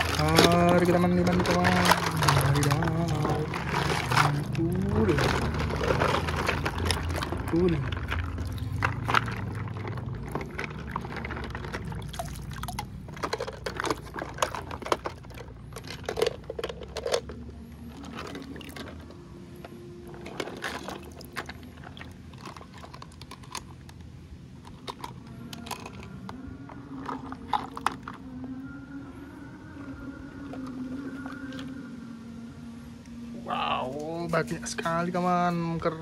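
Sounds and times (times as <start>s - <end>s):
water sloshing and pouring: 0.0s - 24.0s, 26.7s - 28.4s
toys clicking and knocking: 12.7s - 17.4s, 24.6s - 28.2s.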